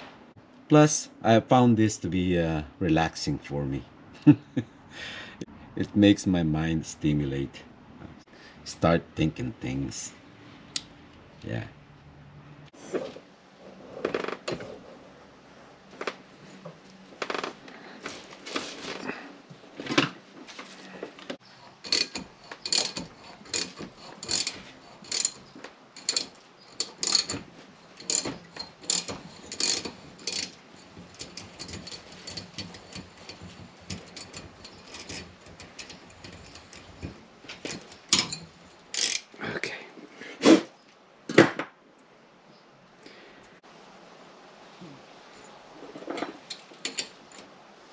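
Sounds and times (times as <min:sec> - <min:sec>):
metal vise clanking: 0:21.4 - 0:39.3, 0:46.0 - 0:47.4
socket ratchet clicking: 0:26.0 - 0:27.4, 0:28.0 - 0:36.9, 0:37.7 - 0:39.3.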